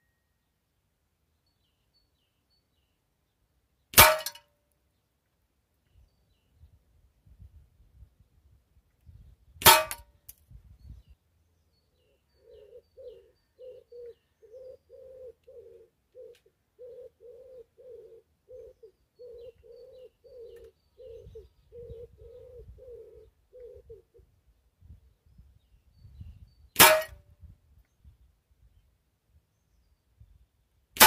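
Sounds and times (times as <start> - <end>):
pigeon cooing: 12.4 - 24.2.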